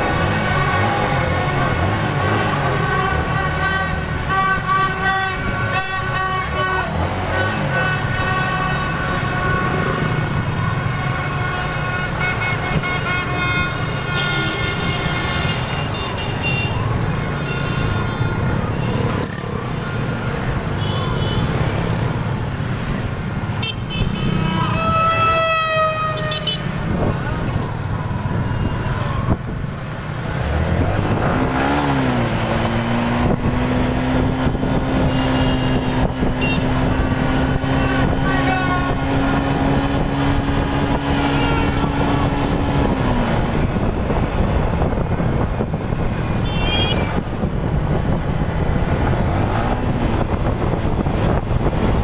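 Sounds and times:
traffic: 0.0s - 52.0s
motorbike horns honking: 0.2s - 19.3s, 20.8s - 21.6s, 23.5s - 27.3s, 34.8s - 39.6s, 40.9s - 42.4s, 46.3s - 47.2s.

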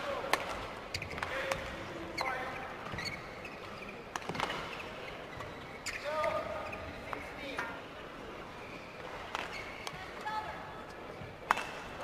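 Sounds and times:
low hall noise: 0.0s - 12.0s
shoes squeaking on court floor: 0.8s - 7.3s, 8.5s - 10.0s.

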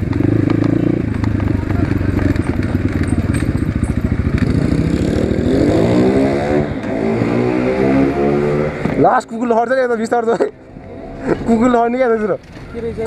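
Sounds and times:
dirt bike engine revving: 0.0s - 9.1s.

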